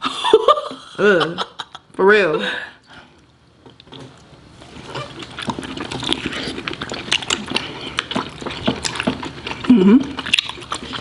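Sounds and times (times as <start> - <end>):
wet chewing and lip-smacking: 3.2 - 11.0.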